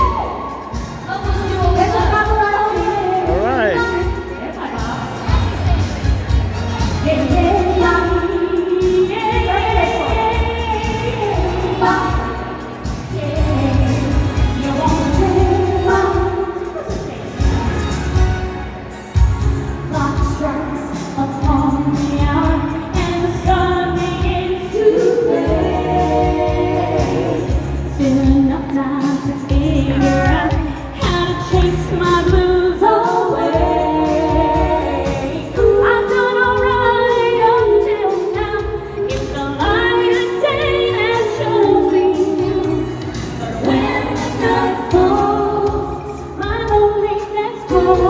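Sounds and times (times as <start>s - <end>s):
female vocal group singing: 6.8s - 17.5s, 19.9s - 48.0s.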